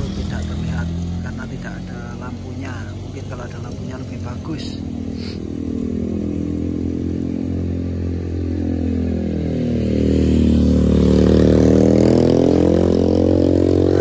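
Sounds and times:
low engine hum: 0.0 - 14.0
motorcycle passing by: 0.0 - 14.0.

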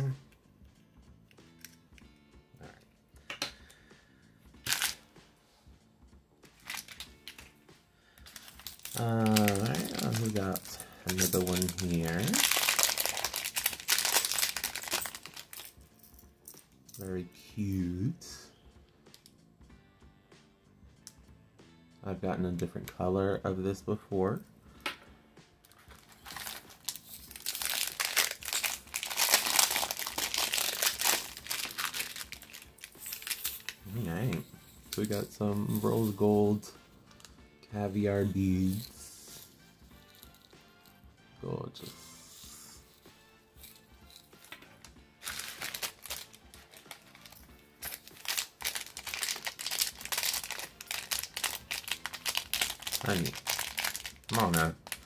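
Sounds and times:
plastic bag crinkling: 6.6 - 7.4, 8.2 - 15.8, 25.8 - 36.2, 45.2 - 55.0.

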